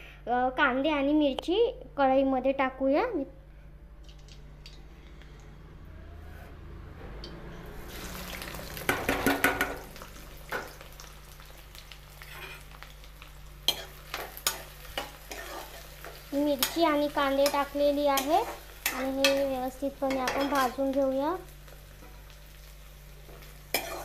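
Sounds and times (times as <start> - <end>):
onions sizzling in hot oil: 7.8 - 24.0.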